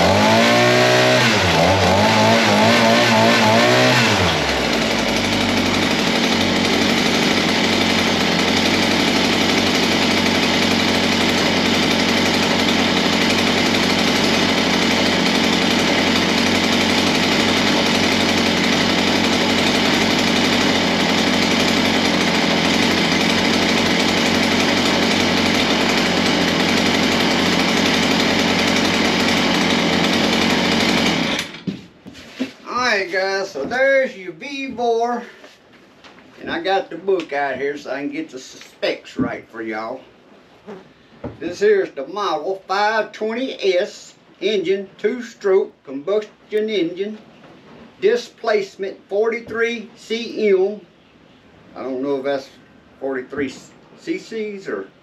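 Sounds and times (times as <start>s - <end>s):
tiller engine revving and running: 0.0s - 31.8s.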